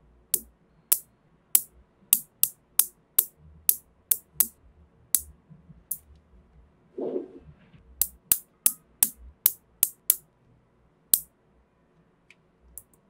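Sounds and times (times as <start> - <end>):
magnetic balls clicking together: 0.4 - 5.3, 8.0 - 10.2.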